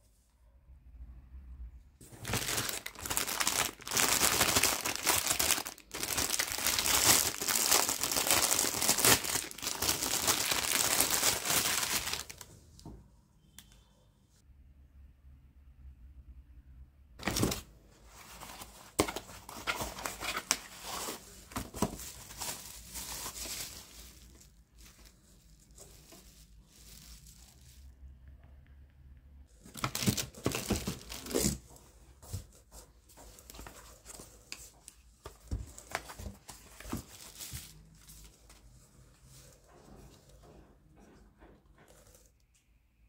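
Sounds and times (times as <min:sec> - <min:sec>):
bubble wrap crinkling: 0:02.0 - 0:12.4, 0:18.3 - 0:27.9, 0:29.7 - 0:31.6.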